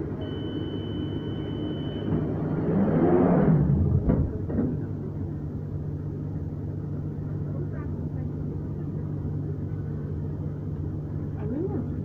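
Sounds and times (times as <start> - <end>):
steady high warning tone: 0.0 - 2.2.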